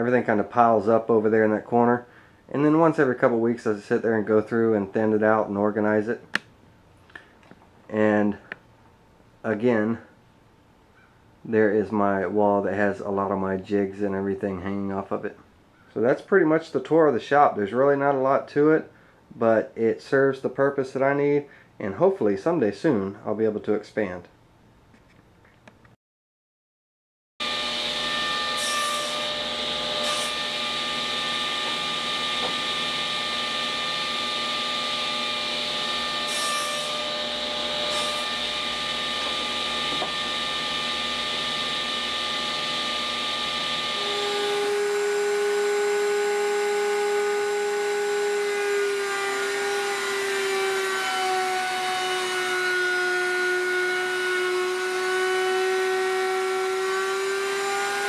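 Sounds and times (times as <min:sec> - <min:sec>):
router high whine: 0:27.4 - 0:58.0
table saw cutting wood: 0:27.4 - 0:58.0.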